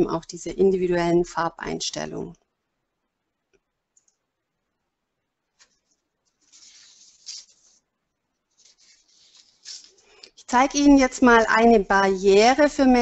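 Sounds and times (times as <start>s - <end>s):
faint clicks: 3.5s - 4.2s
soft hissing rustle: 5.6s - 7.8s, 8.5s - 13.0s.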